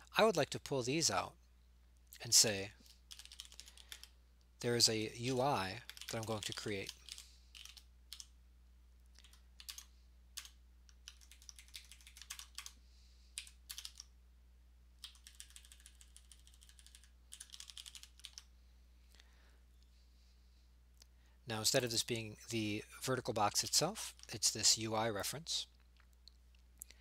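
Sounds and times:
faint keyboard typing: 2.3 - 8.4, 9.0 - 14.2, 15.0 - 18.5, 23.5 - 24.6.

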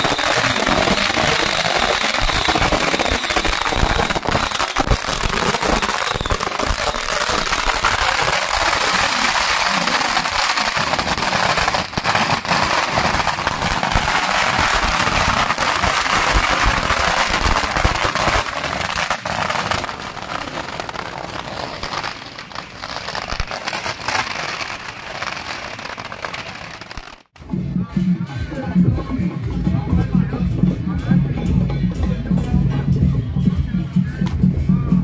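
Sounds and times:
firecrackers crackling: 0.0 - 27.4.

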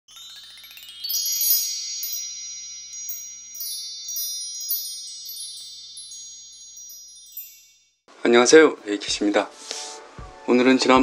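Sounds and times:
bright chime strikes: 0.1 - 8.0
upward sweep of bell tones: 0.1 - 8.1.

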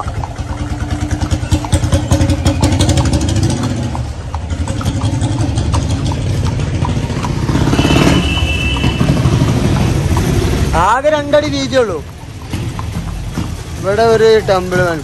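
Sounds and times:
small engine pulsing: 0.0 - 9.8.

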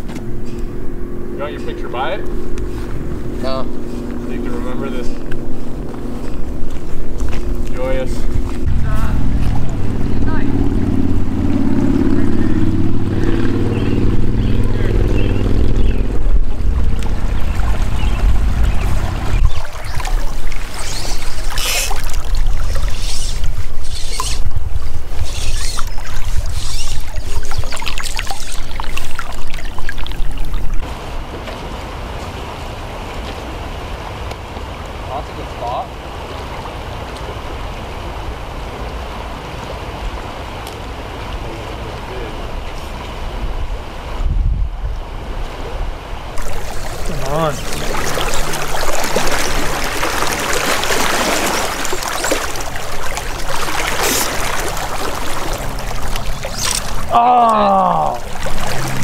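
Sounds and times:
wind buffeting microphone: 0.0 - 30.9, 43.1 - 52.0
shallow river rushing: 0.0 - 35.2, 46.2 - 59.0.

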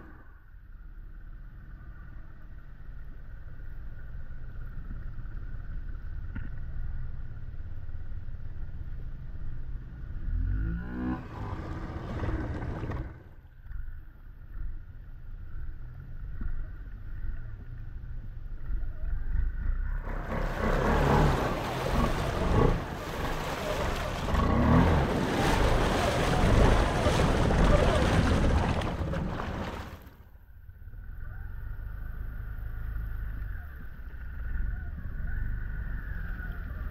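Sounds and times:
atv engine running: 0.7 - 28.4
water churning and splashing: 19.9 - 30.2.

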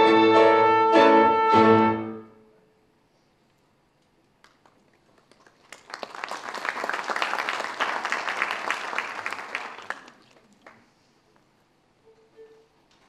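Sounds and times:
audience applauding: 4.4 - 10.9.

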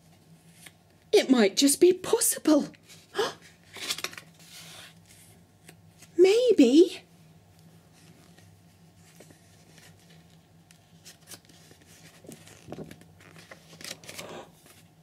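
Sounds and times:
page turning: 3.7 - 6.1, 8.3 - 14.9
book rustling and tapping: 11.0 - 14.8.

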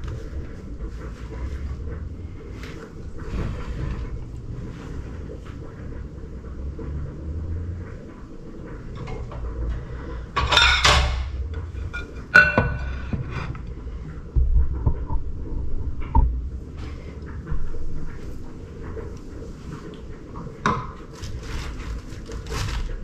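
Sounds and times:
low rumble: 0.0 - 23.0
dishes clattering: 8.9 - 13.7, 20.4 - 22.0.

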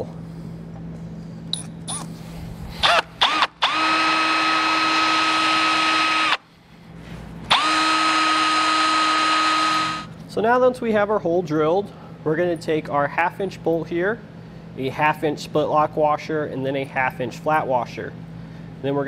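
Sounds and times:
cordless drill whining: 2.8 - 6.4, 7.5 - 10.1.

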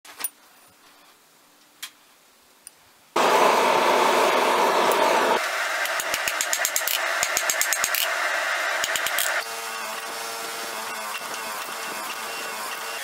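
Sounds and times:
forge fire rushing: 3.2 - 7.3.

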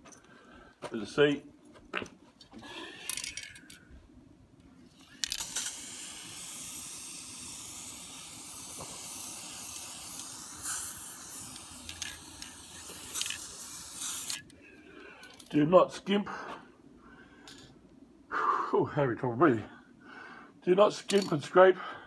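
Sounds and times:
aerosol spray can hissing: 5.1 - 14.5.

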